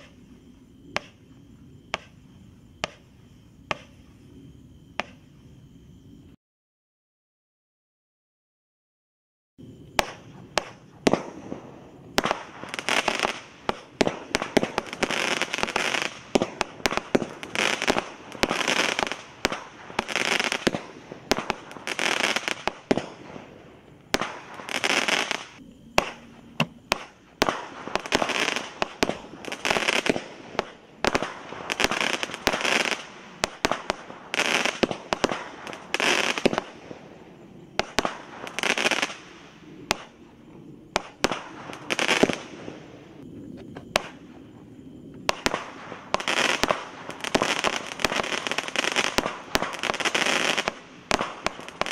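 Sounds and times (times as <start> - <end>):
firework crackling: 9.8 - 40.3, 40.9 - 43.3, 45.2 - 51.9.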